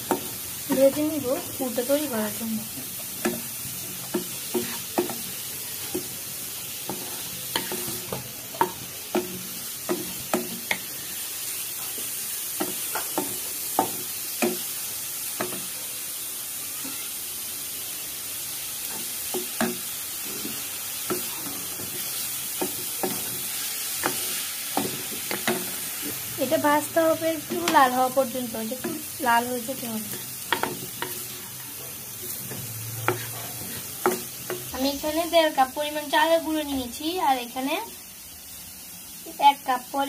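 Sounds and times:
faint sizzling hiss: 0:00.0 - 0:40.0
wooden spatula scraping pan: 0:04.5 - 0:05.2, 0:30.1 - 0:34.6.

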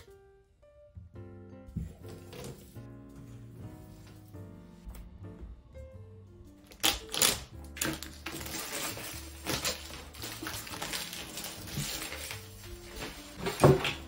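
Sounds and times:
background music: 0:00.0 - 0:14.0
plastic wrap crackling: 0:06.6 - 0:14.0
knife slitting cardboard: 0:07.8 - 0:14.0.

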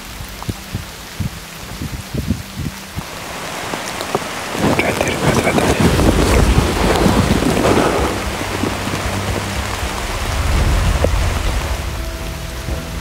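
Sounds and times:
rain falling in a forest: 0:00.0 - 0:13.0
wind buffeting microphone: 0:00.0 - 0:13.0.

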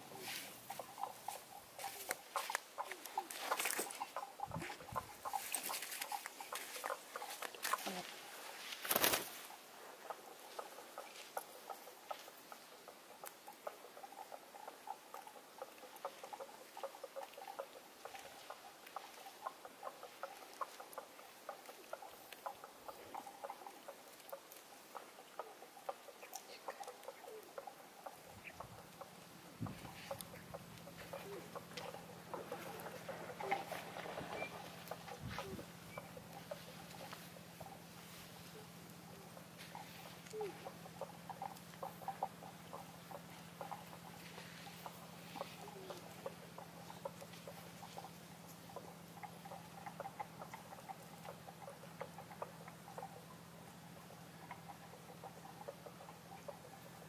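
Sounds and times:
pigeon pecking grain: 0:10.3 - 0:52.9
steady low hum: 0:13.8 - 0:57.0.

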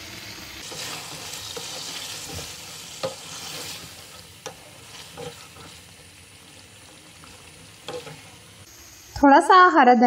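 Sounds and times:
meat sizzling in a pan: 0:00.0 - 0:09.1
wooden spatula stirring: 0:00.6 - 0:08.5.

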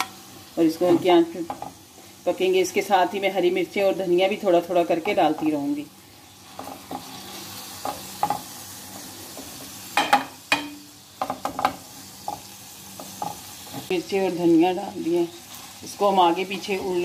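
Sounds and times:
chicken sizzling in a frying pan: 0:00.0 - 0:17.0
spatula scraping and knocking on pan: 0:00.9 - 0:01.8, 0:06.5 - 0:14.0.

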